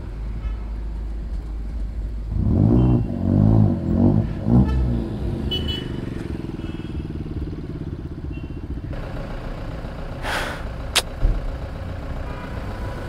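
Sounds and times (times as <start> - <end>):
motorcycle engine idling: 5.9 - 12.4.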